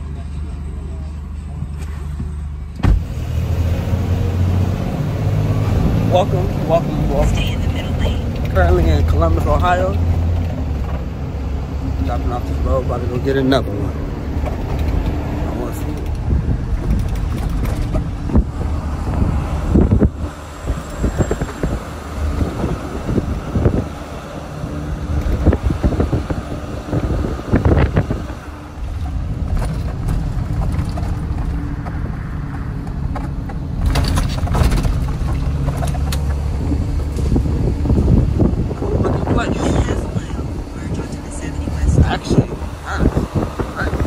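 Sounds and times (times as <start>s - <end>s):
road noise: 0.0s - 44.0s
truck engine hum: 0.0s - 44.0s
knocks and rattles: 15.8s - 18.8s, 27.6s - 37.4s.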